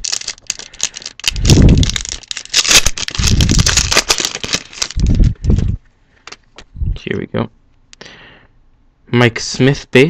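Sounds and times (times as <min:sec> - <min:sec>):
plastic wrapper crinkling: 0:00.0 - 0:06.7.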